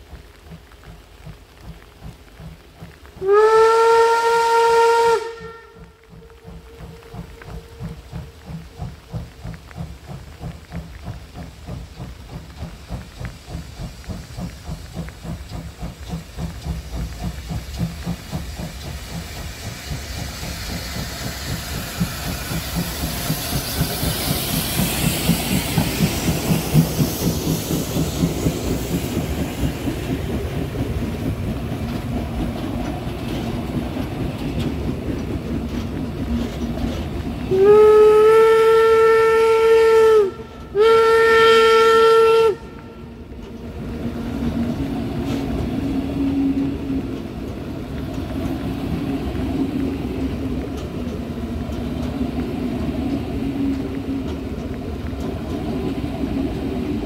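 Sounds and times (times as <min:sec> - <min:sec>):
locomotive exhaust chuffs: 0:00.0 - 0:57.0
steam hiss: 0:00.0 - 0:57.0
steam locomotive whistle: 0:03.2 - 0:08.5, 0:37.5 - 0:43.3.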